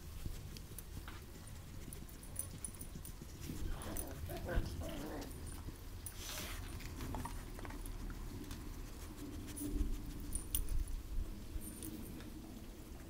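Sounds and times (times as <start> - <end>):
puppies scuffling: 0.0 - 10.8
puppies growling: 3.4 - 5.8.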